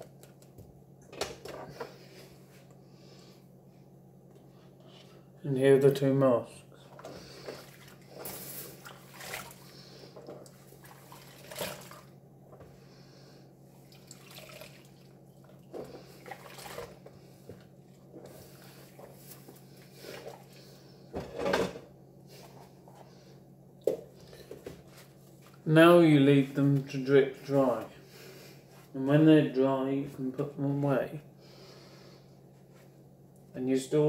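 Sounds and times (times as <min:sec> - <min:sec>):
water splashing in sink: 0:07.4 - 0:09.8, 0:10.4 - 0:12.1, 0:13.9 - 0:17.1.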